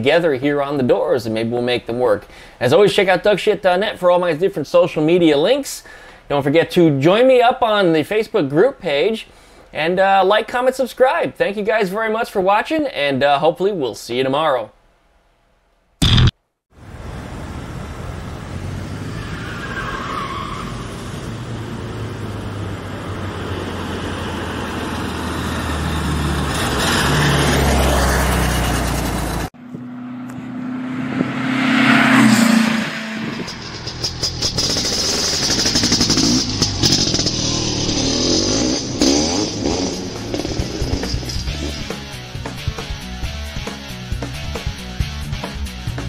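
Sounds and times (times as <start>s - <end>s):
vehicle passing by: 20.7s - 34.2s, 36.0s - 42.2s
vehicle engine running: 32.5s - 43.4s.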